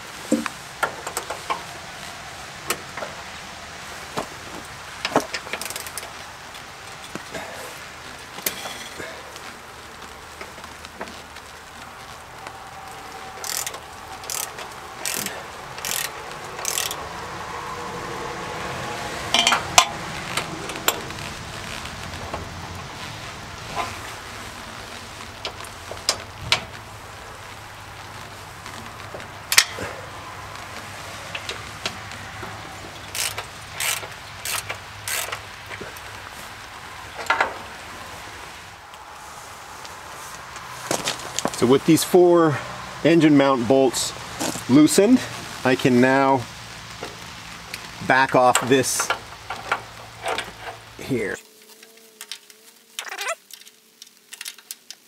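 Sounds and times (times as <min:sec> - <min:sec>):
ratchet wrench clicking: 0:05.5 - 0:06.1, 0:13.4 - 0:17.0, 0:33.1 - 0:35.4.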